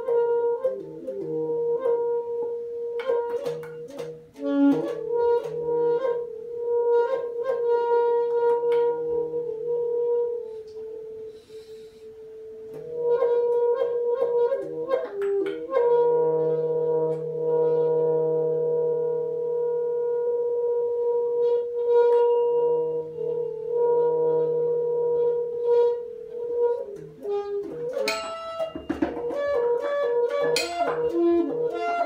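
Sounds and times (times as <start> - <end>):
percussion clicks and taps: 0.0 - 6.2, 7.1 - 9.3, 12.7 - 16.0, 26.4 - 32.0
alto saxophone held tones: 0.0 - 32.0.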